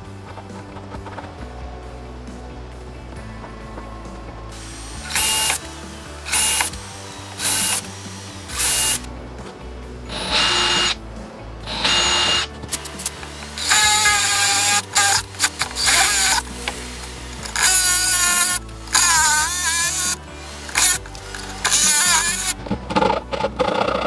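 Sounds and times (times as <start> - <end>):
background music: 0.0 - 24.0
cordless drill whining: 4.6 - 9.1, 10.1 - 11.0, 11.6 - 22.6.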